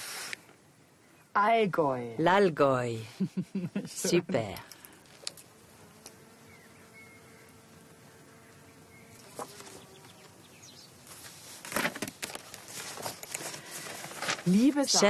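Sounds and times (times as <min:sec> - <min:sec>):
faint steady buzz: 0:03.3 - 0:15.0
paper rustling: 0:09.2 - 0:09.8, 0:11.1 - 0:15.0.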